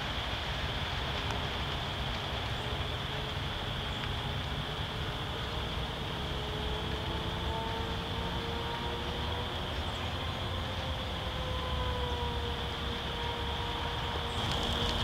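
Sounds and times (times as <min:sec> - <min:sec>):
dry grass fire rushing: 0:00.0 - 0:05.3, 0:14.3 - 0:15.0.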